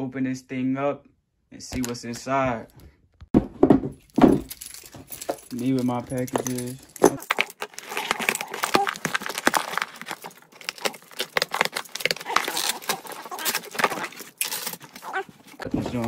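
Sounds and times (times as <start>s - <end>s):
keyring jangling: 4.0s - 7.4s
packing tape ripping off cardboard: 7.2s - 15.6s.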